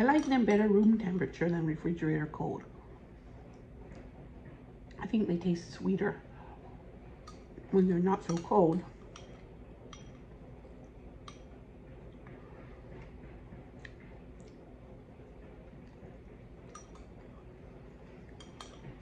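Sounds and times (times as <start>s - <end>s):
room hum: 0.0s - 19.0s
spoon clicking against ceramic bowl: 8.2s - 10.2s.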